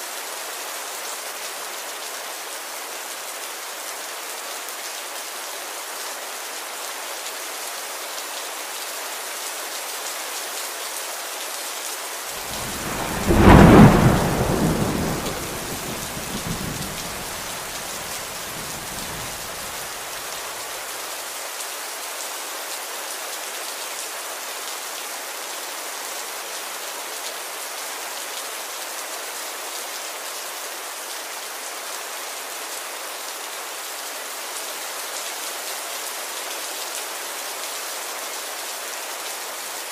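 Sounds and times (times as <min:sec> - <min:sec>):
steady rain falling: 0:00.0 - 0:39.9
thunderclap rumbling: 0:12.4 - 0:19.8.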